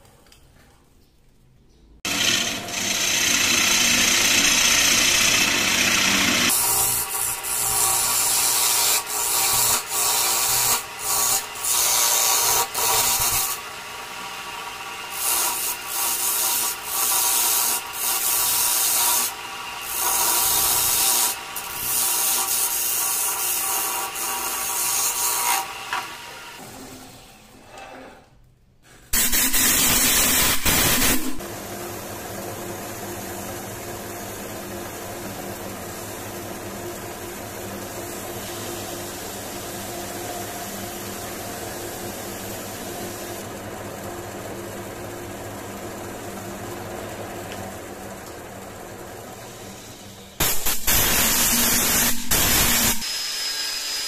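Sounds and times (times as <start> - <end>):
chisel scraping spinning wood: 2.1 - 13.4
wood lathe running: 2.1 - 26.7.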